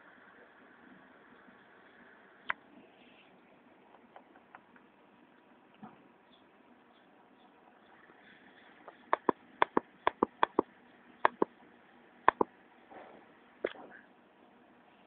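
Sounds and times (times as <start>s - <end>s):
sharp clicks in pairs: 8.9s - 10.7s, 11.3s - 11.5s, 12.3s - 12.5s.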